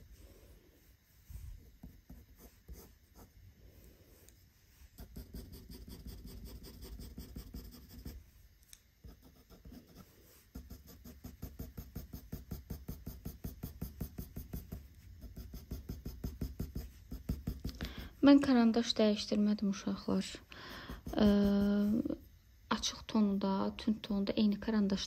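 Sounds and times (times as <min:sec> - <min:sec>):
pencil scratching on paper: 0:01.7 - 0:03.4, 0:05.0 - 0:08.2, 0:09.0 - 0:18.4, 0:20.2 - 0:22.2.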